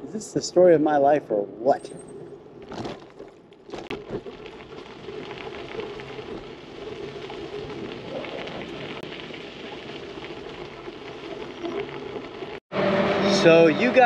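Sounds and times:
bicycle tyres rolling on gravel: 2.5s - 12.6s.

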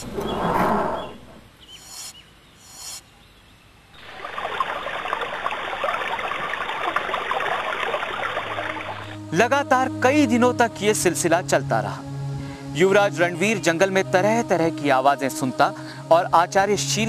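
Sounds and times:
faint bird chirps: 0.2s - 3.8s
babbling stream water: 4.0s - 9.2s.

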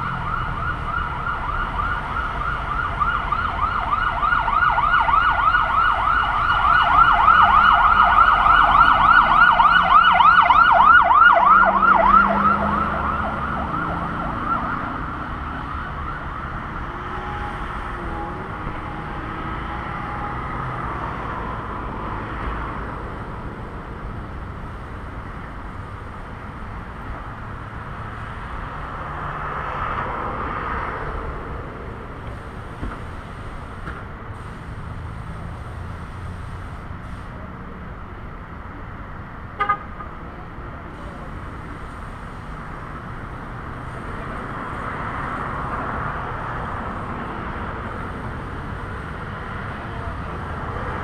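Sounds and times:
siren yelping: 0.0s - 16.6s.

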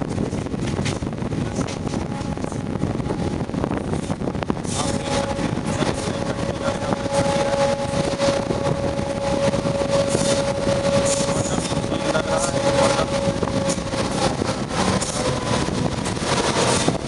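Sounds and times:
train wheel clatter and wind: 0.0s - 17.0s
steady high tone: 4.8s - 17.0s.

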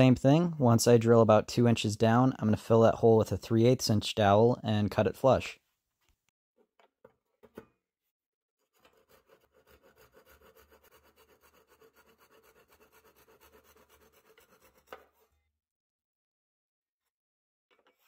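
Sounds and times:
handsaw cutting wooden dowel: 8.6s - 15.4s.

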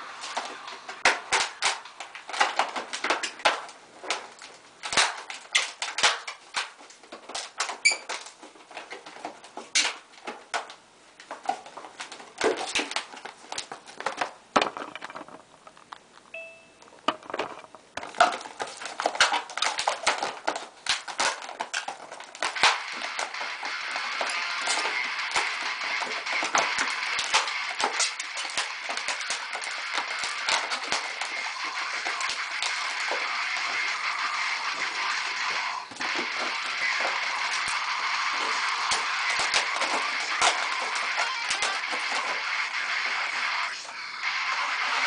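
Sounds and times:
balloons squeaking and rubbing: 4.8s - 8.5s, 18.4s - 45.0s.

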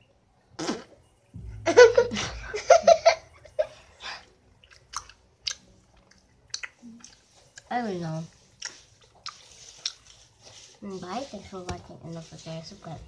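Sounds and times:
girls giggling and laughing: 1.4s - 4.0s.

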